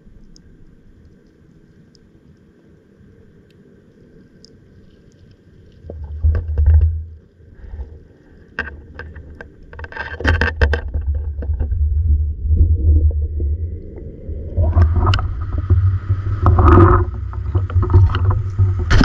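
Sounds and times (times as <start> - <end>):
muffled underwater rumbling: 5.8 - 19.0
sharp clicks and knocks: 5.9 - 7.2, 8.5 - 11.8, 14.7 - 19.0.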